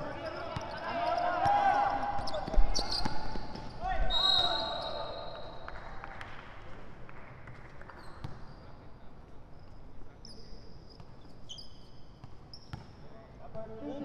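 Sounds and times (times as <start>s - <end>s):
sneaker squeaks: 0.0s - 5.5s, 7.9s - 8.8s, 9.5s - 13.1s
indoor hall background noise: 0.0s - 14.0s.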